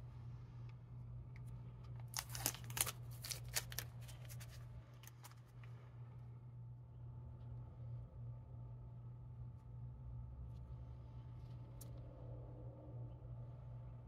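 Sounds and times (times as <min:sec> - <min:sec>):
steady low hum: 0:00.0 - 0:14.0
tape being peeled off: 0:02.0 - 0:05.4.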